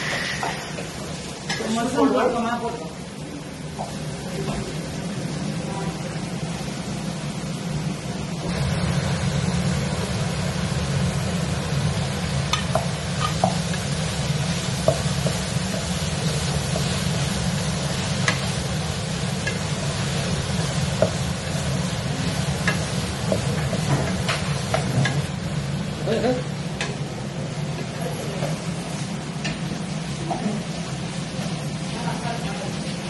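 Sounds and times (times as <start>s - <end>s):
spatula scraping pan: 0.0s - 0.9s
vegetables sizzling in frying pan: 0.0s - 33.0s.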